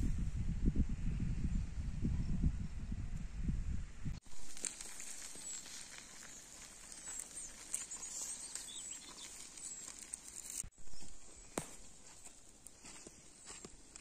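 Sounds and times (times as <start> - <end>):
small crackles and pops: 4.2 - 10.6
fish sizzling over charcoal: 4.2 - 10.7
thin high chirps: 4.5 - 10.7.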